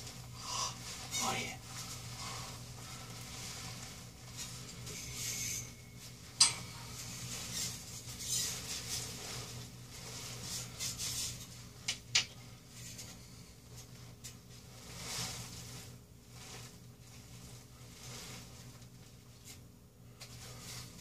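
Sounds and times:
nylon clothing rustling: 0.0s - 11.8s
steady low hum: 0.0s - 21.0s.

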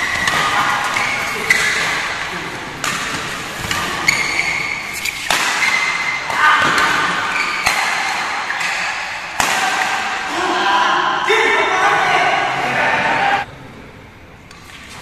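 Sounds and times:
racquets hitting shuttlecock: 0.0s - 10.3s.

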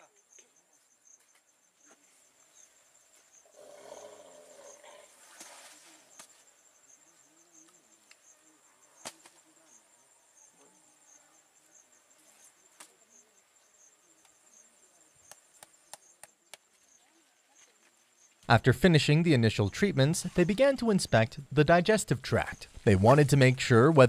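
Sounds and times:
insect chirping: 0.0s - 18.5s.

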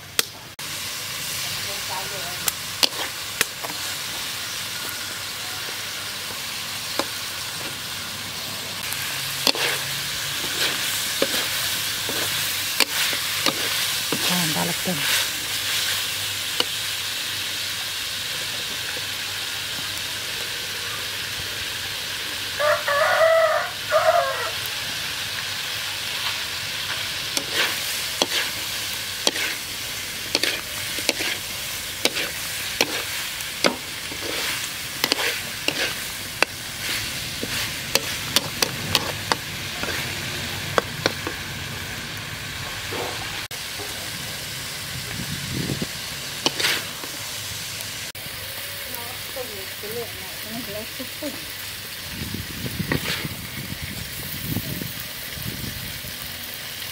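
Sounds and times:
food sizzling in a wok: 0.0s - 56.9s
metal spatula scraping a pan: 2.8s - 3.2s, 9.3s - 15.9s, 27.3s - 40.2s, 46.4s - 46.9s
rooster crowing: 22.5s - 25.1s.

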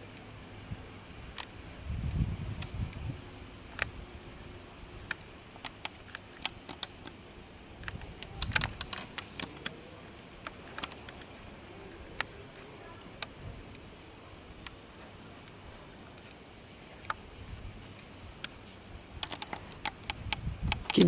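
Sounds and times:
crickets chirring: 0.0s - 21.0s
sharp clicks and taps: 19.2s - 21.0s.

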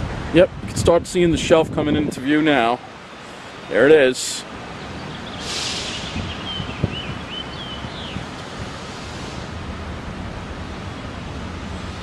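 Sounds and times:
distant traffic: 0.0s - 12.0s
wind: 0.0s - 12.0s.

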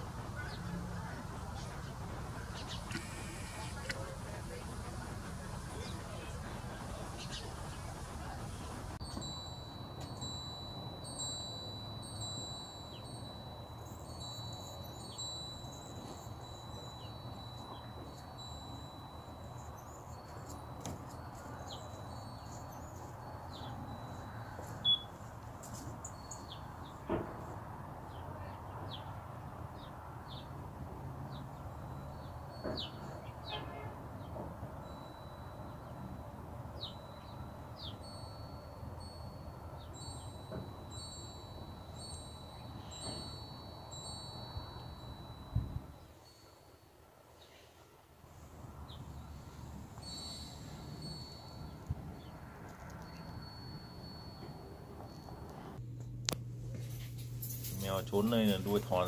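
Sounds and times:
sparrows chirping: 0.0s - 46.4s, 48.8s - 53.6s
high ringing tone: 9.0s - 26.9s, 31.6s - 46.9s, 48.8s - 55.8s.

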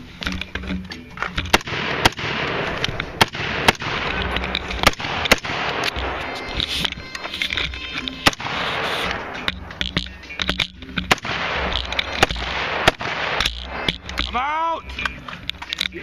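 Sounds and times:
rifle gunshots: 1.5s - 6.4s, 8.2s - 9.7s, 11.0s - 14.4s.

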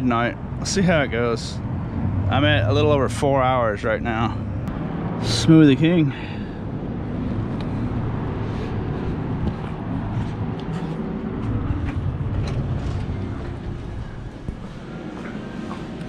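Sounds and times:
road traffic rumble: 0.0s - 16.0s
footsteps on pavement: 7.4s - 16.0s.

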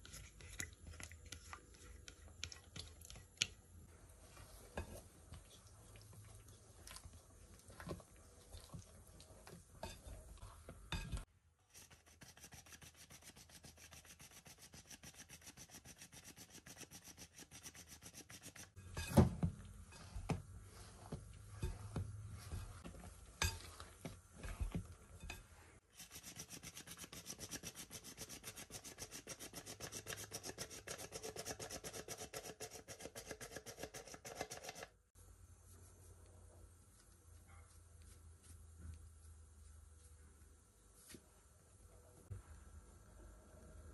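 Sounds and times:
spatula scraping glass bowl: 19.8s - 25.6s.

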